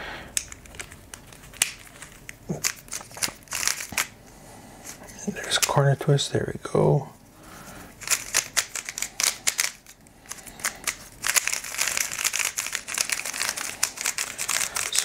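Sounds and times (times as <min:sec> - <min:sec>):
speed cube plastic clicks: 0:08.0 - 0:15.0.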